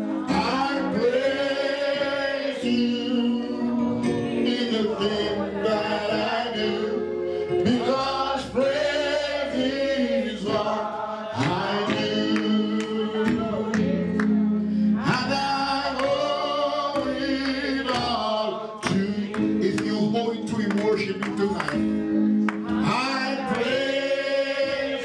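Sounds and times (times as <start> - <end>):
gospel music with singing: 0.0 - 25.0.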